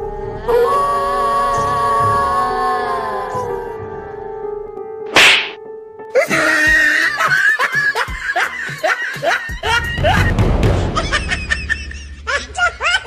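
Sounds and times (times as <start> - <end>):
background music: 0.0 - 13.0
high-pitched cackling laughter: 6.3 - 10.3, 10.9 - 13.0.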